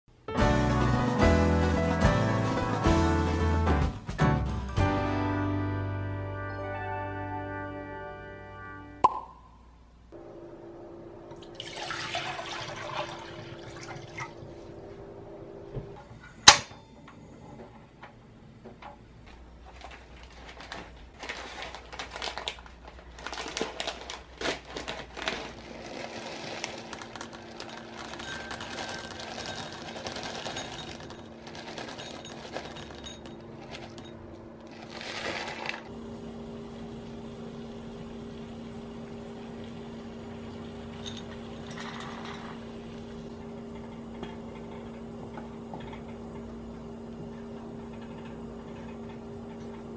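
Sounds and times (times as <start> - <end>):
water boiling: 11.4 - 14.6, 34.7 - 43.3
water pouring into a saucepan: 11.5 - 14.4
plastic bag crinkling: 19.6 - 34.0, 34.7 - 35.9.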